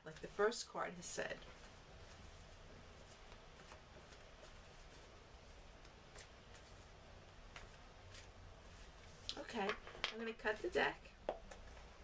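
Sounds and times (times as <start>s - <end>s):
cards being handled: 5.8s - 10.2s.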